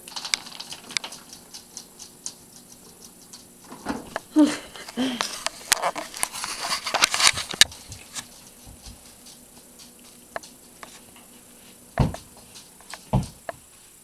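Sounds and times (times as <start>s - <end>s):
low thumps: 11.9s - 13.6s.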